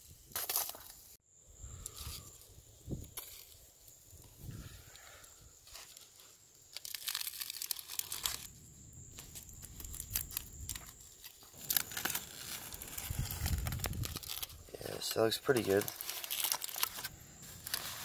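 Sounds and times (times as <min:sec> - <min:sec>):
foil crinkling and tearing: 0:00.3 - 0:01.1, 0:05.6 - 0:08.6, 0:09.2 - 0:18.0.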